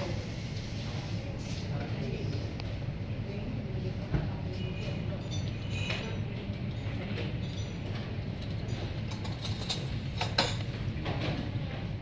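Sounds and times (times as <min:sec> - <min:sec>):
tableware clinking: 0:05.0 - 0:11.2.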